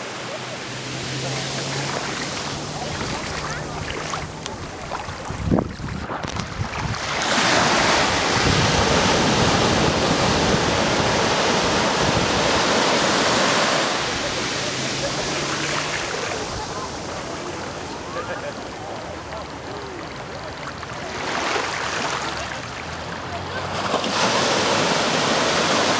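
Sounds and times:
surf breaking on shore: 0.0s - 25.9s
wind buffeting microphone: 1.9s - 13.1s.

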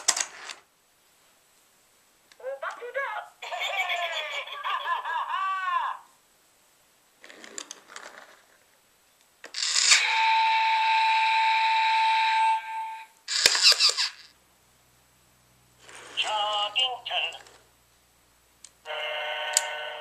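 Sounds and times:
electronic train horn: 10.0s - 13.1s, 18.9s - 20.0s.

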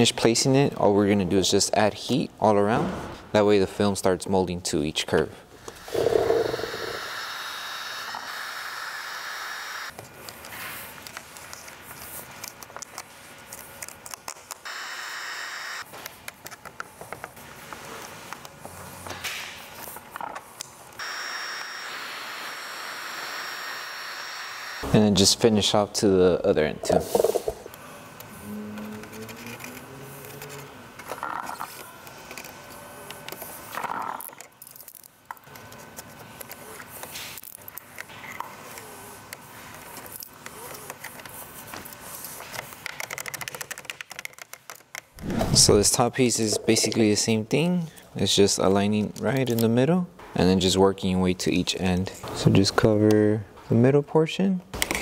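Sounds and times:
heat gun blowing: 5.7s - 9.9s, 14.6s - 15.9s, 21.0s - 24.9s.

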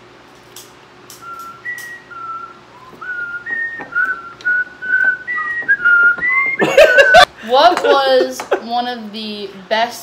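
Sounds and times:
woman whistling a tune: 1.1s - 6.6s.

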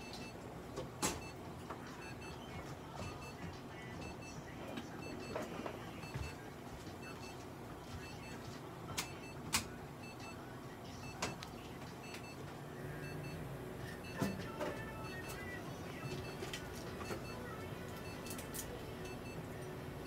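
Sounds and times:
equipment hum: 0.0s - 20.0s
high electronic beeps: 13.0s - 18.4s.

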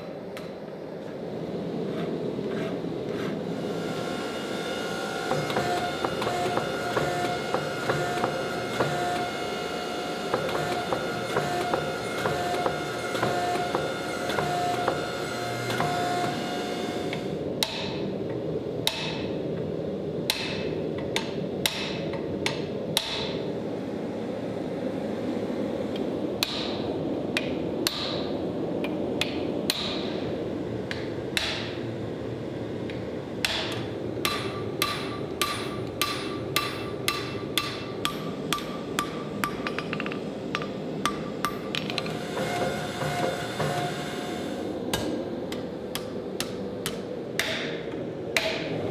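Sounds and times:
hammer striking steel on anvil: 33.4s - 41.9s, 45.9s - 47.8s.

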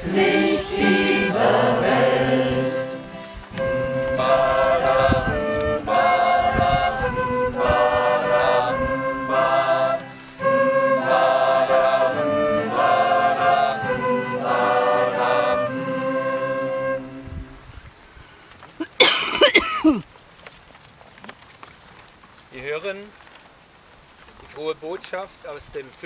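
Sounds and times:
choir singing a hymn: 0.0s - 17.4s.

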